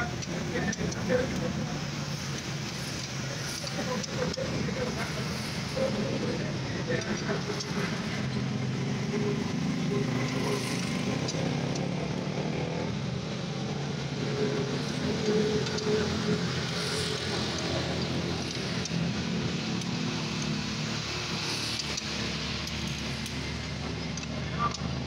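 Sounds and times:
engine running steadily: 0.0s - 25.0s
faint clicks: 21.4s - 25.0s.

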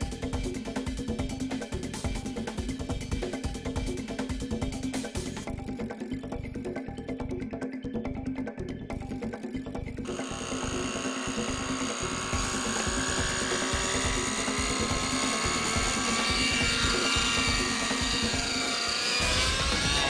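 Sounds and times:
model helicopter engine whine: 10.0s - 20.0s.

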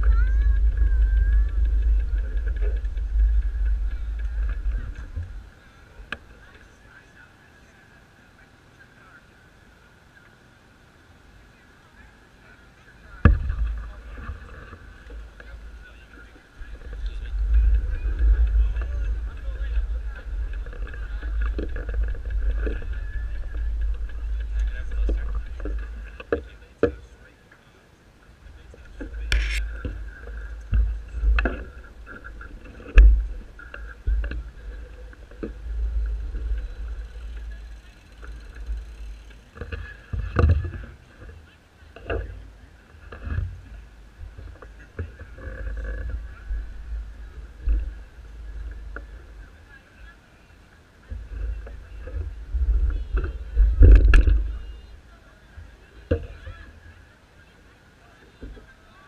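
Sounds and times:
microphone handling noise: 0.0s - 6.3s, 13.2s - 27.0s, 28.6s - 38.9s, 51.1s - 54.9s
wind rumble: 0.0s - 6.9s, 13.1s - 26.7s, 28.5s - 41.2s, 43.0s - 49.8s, 51.1s - 55.1s
faint crowd chatter: 0.0s - 59.0s.

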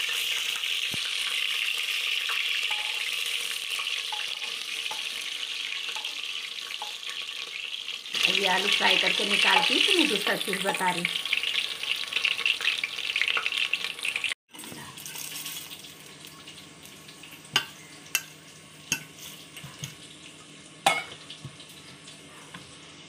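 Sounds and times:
potatoes sizzling in hot oil: 0.0s - 23.0s
plate and bowl clinking: 20.8s - 21.2s.

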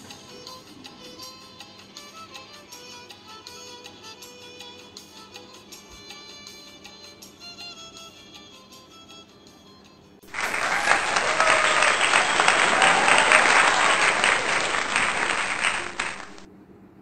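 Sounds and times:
crowd applauding: 10.2s - 16.5s.

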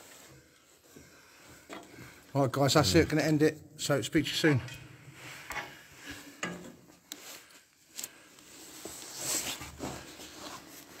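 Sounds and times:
rustling: 7.0s - 11.0s.

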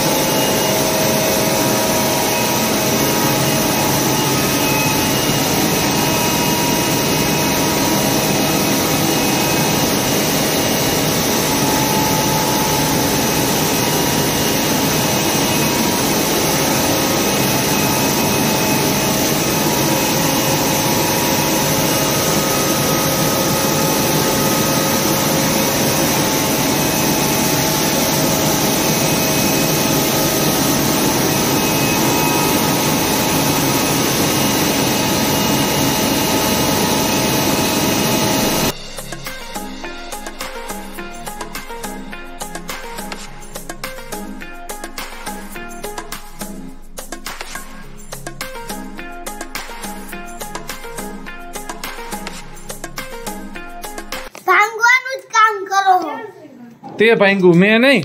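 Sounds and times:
flour mill machinery running: 0.0s - 38.7s.

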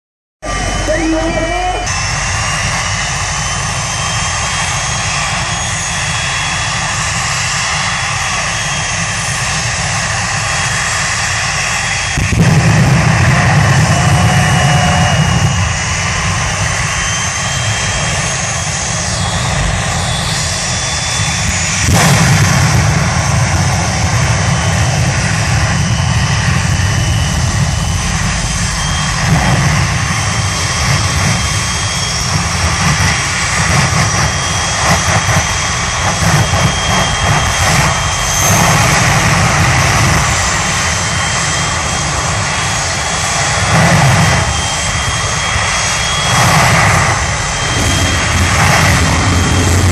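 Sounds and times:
jet engine whining: 0.4s - 49.9s.

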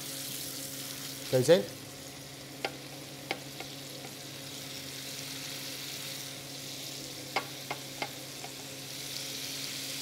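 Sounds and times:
meat sizzling in a frying pan: 0.0s - 10.0s.

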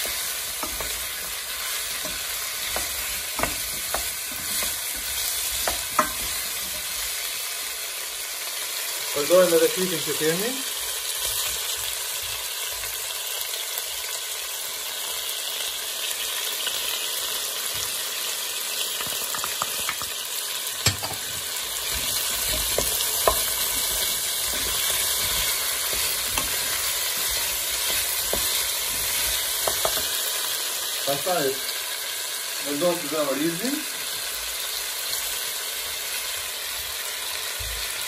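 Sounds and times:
wooden spoon knocking on pot: 0.0s - 7.0s, 19.0s - 20.2s, 20.8s - 30.2s
vegetables sizzling in oil: 0.0s - 38.0s.

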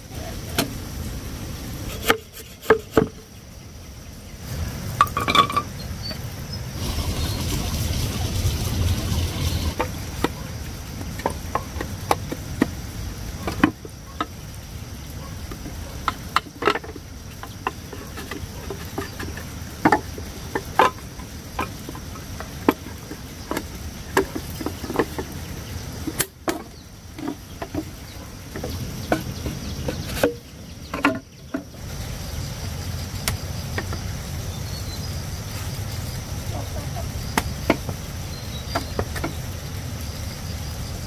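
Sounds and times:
high insect drone: 1.6s - 41.0s
bamboo tubes knocking: 1.9s - 3.2s, 5.0s - 5.8s, 9.6s - 12.8s, 13.4s - 14.4s, 15.5s - 31.8s, 37.3s - 39.5s.

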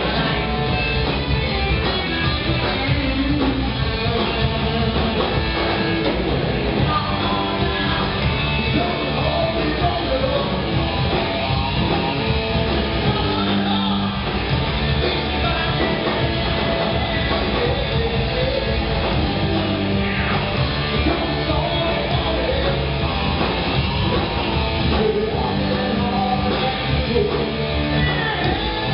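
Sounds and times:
drum kit: 0.0s - 28.9s
electric guitar: 0.0s - 28.9s
person singing: 6.8s - 10.8s, 13.0s - 23.1s, 24.0s - 28.9s.

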